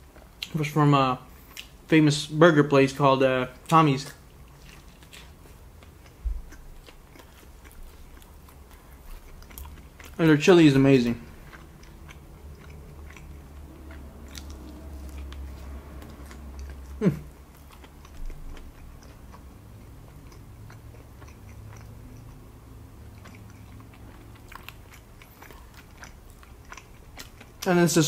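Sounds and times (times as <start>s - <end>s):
wet chewing sounds: 0.0s - 1.9s, 3.5s - 28.0s.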